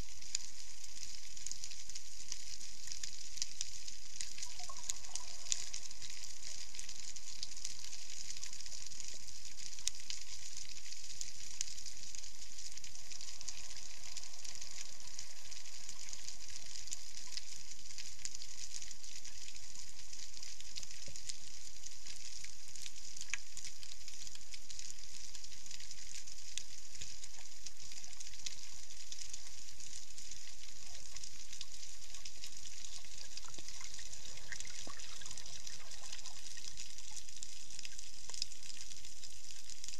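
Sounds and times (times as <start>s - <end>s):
snapping shrimp crackle underwater: 0.0s - 39.9s.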